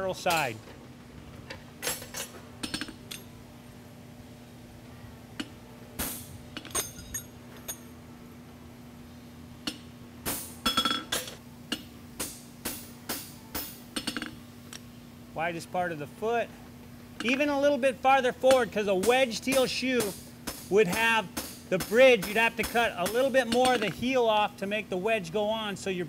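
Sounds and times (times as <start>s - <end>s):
hammer clinking on horseshoe: 6.6s - 7.8s, 18.5s - 24.0s.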